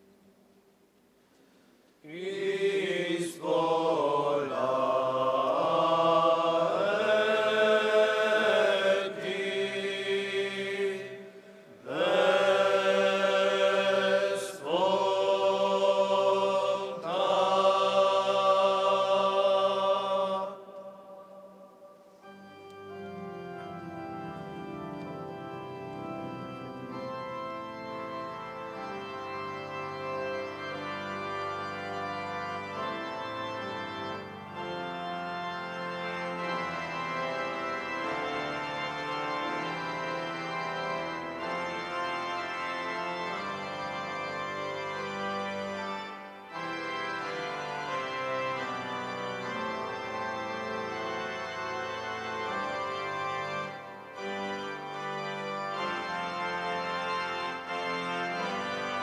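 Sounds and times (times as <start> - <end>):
liturgical chant: 2.0 - 22.5
organ sustained chords: 2.0 - 59.0.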